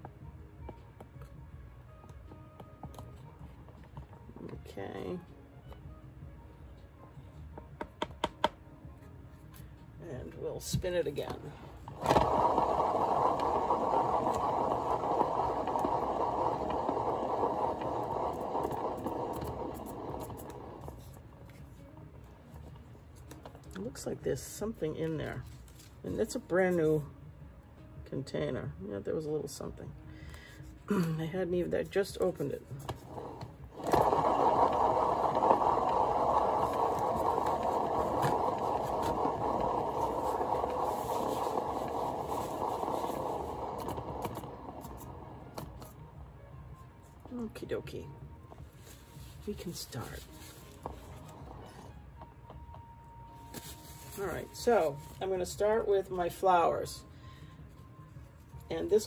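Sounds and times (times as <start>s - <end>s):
turntable rolling rumble: 10.6s - 21.4s, 32.0s - 46.2s, 49.4s - 52.8s.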